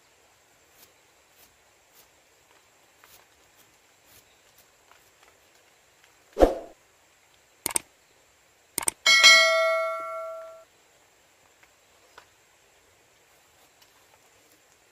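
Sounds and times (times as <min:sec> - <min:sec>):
mouse clicks: 0:07.6 - 0:07.8, 0:08.8 - 0:09.0
bell ding: 0:09.1 - 0:10.6.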